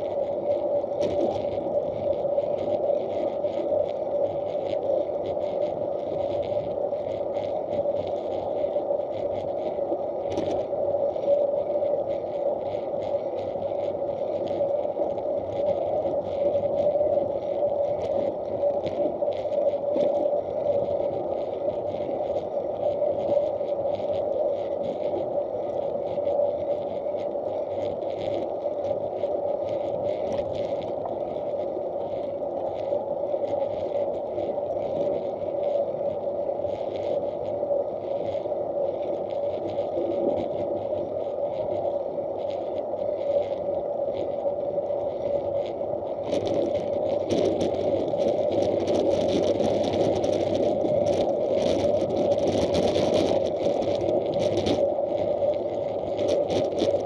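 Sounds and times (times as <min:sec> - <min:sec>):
bicycle tyres rolling on asphalt: 0:00.0 - 0:57.0
light crackles: 0:00.0 - 0:57.0
wind on camera case: 0:00.0 - 0:57.0.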